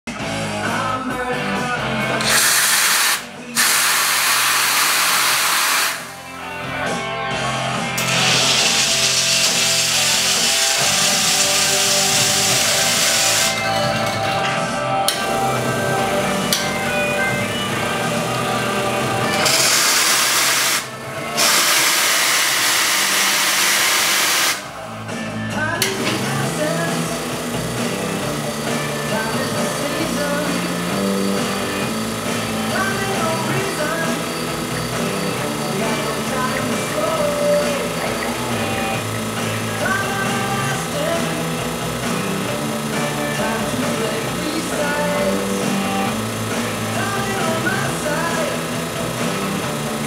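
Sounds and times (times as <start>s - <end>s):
steam wand hissing: 2.2s - 6.2s, 8.0s - 13.6s, 19.4s - 24.7s.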